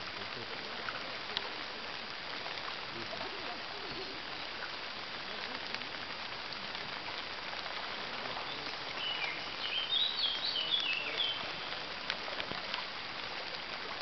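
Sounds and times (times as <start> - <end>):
light rain pattering on leaves: 0.0 - 14.0
songbird chirping: 8.4 - 11.8.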